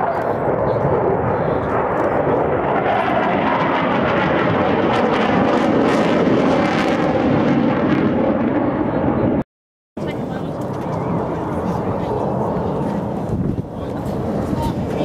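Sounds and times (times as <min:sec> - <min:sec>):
jet engines roaring with crackle: 0:00.0 - 0:09.4, 0:10.0 - 0:15.0.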